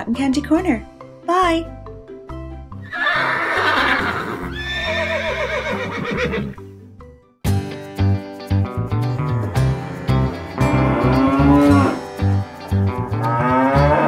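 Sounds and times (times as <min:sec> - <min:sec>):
background music: 0:00.0 - 0:14.0
horse whinnying: 0:02.8 - 0:06.6.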